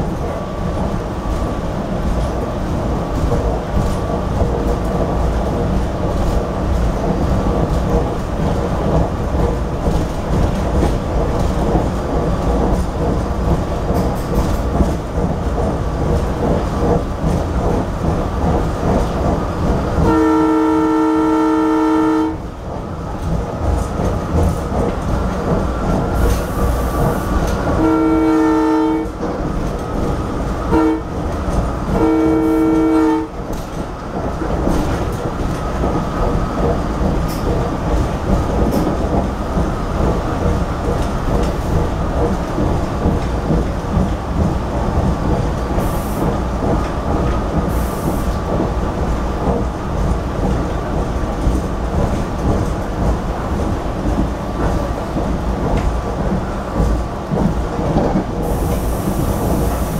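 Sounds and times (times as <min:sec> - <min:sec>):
train rumbling on rails: 0:00.0 - 0:59.9
train horn signal: 0:20.0 - 0:22.4, 0:27.8 - 0:29.2, 0:30.7 - 0:31.1, 0:31.9 - 0:33.4.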